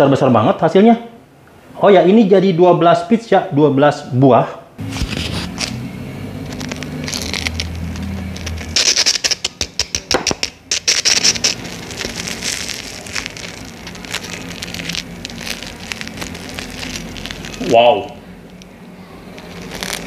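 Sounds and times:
bread crust crackling: 4.8s - 20.0s.

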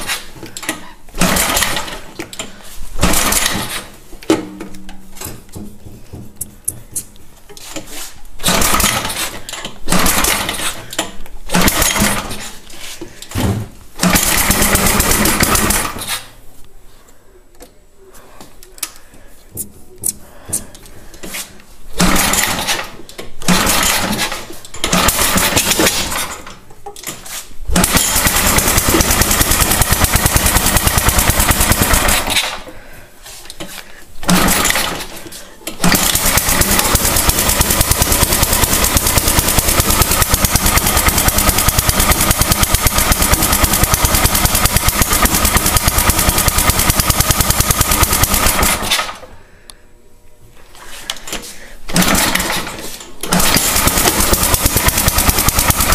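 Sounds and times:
engine cranking: 0.0s - 4.0s, 8.4s - 12.6s, 14.0s - 16.3s, 22.0s - 26.6s, 27.8s - 32.7s, 34.2s - 49.2s, 51.9s - 55.9s
snowblower engine running: 35.8s - 49.0s, 53.3s - 55.9s.

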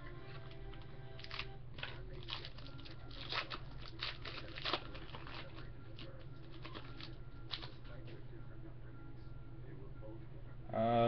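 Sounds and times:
foil wrapper tearing and crinkling: 1.2s - 7.8s.

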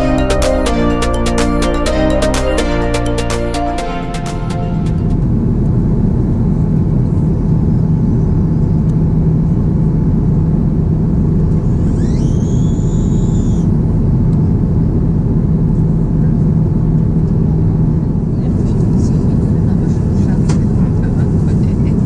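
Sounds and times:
brief high tone: 0.0s - 5.4s
airplane cabin engine rumble: 5.1s - 22.0s.

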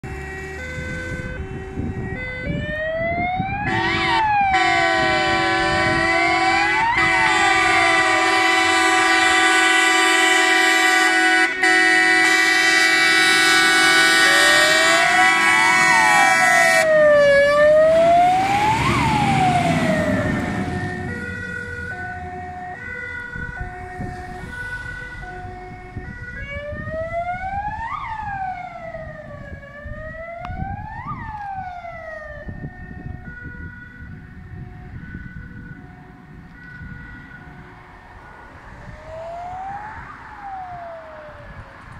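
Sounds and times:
fire engine air horns blaring: 0.0s - 27.2s, 32.5s - 37.9s
heavy engine noise: 0.0s - 41.9s
wailing siren: 0.0s - 41.9s.

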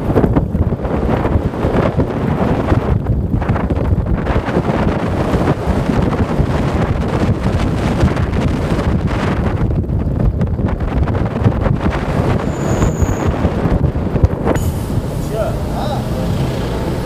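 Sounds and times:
car and road hum: 0.0s - 17.0s
wind buffeting microphone: 0.0s - 17.0s.

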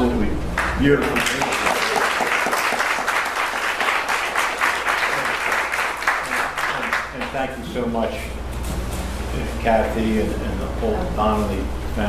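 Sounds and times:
audience applauding: 0.6s - 7.6s.

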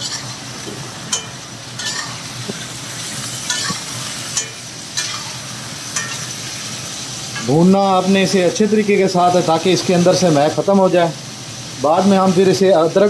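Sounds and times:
metal spatula scraping pan: 0.0s - 0.4s, 1.1s - 6.6s
chicken sizzling in hot fat: 0.0s - 13.0s.

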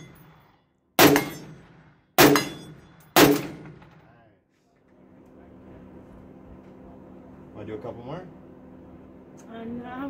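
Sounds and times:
rifle shots echoing: 0.0s - 4.1s.

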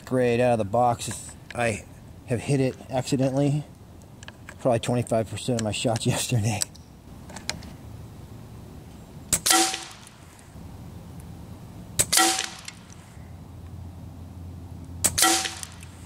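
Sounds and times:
air rifle shots: 9.3s - 10.2s, 12.0s - 13.0s, 15.0s - 16.0s.

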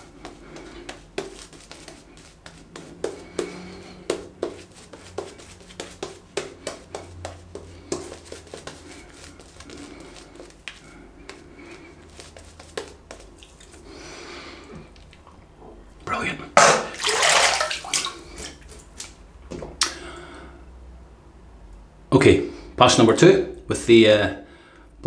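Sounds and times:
shaving brush lathering: 0.0s - 13.8s.

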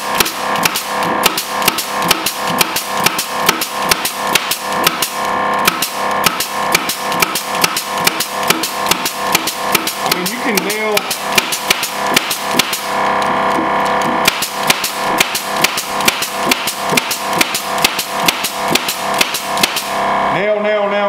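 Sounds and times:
nail gun firing: 0.0s - 13.0s, 14.0s - 20.0s
air compressor running: 0.0s - 20.5s.

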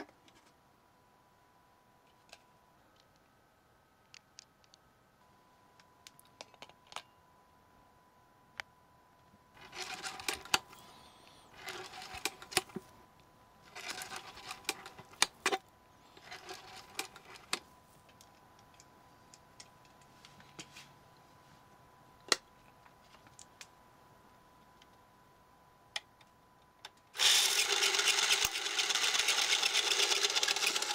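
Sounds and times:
clockwork camera ratcheting whir: 9.6s - 10.6s, 11.5s - 12.7s, 13.7s - 15.6s, 16.2s - 17.6s, 27.2s - 30.9s.

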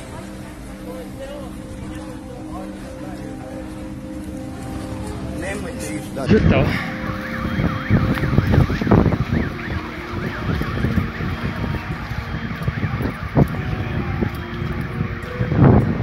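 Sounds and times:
electronic siren sweeping: 1.7s - 16.0s
wind rumble on microphone: 6.3s - 16.0s.

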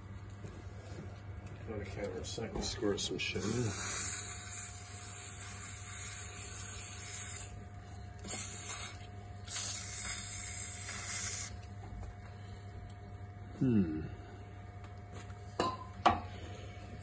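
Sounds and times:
aerosol spray can hissing: 3.4s - 7.6s, 8.2s - 11.6s.

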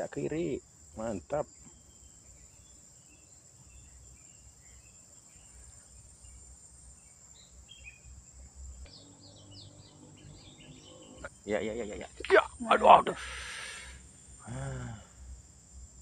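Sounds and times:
high-pitched insect drone: 0.0s - 16.0s
bird chirps: 1.4s - 14.0s.

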